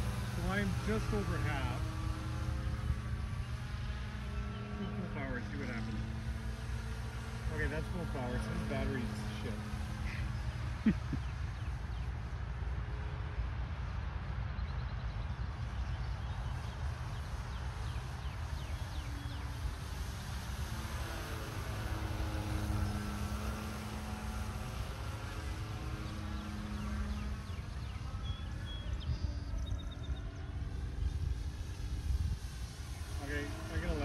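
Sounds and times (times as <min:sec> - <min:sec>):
model plane propeller droning: 0:00.0 - 0:34.0
wind rumble on microphone: 0:00.0 - 0:34.0.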